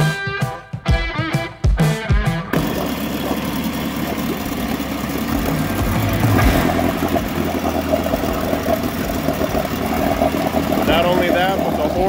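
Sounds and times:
outboard engine running: 2.5s - 12.0s
water churning: 2.6s - 12.0s.

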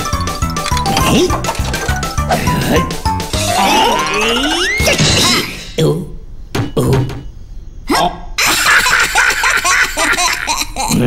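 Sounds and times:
cartoon character laughing: 8.4s - 11.0s.

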